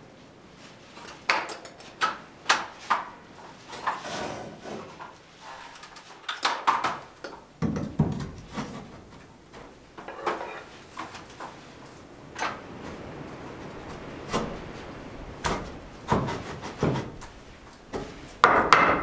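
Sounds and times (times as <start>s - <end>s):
footsteps on aluminium stepladder: 0.9s - 12.6s, 15.4s - 19.0s
sharp knocks: 7.6s - 8.9s, 17.9s - 19.0s.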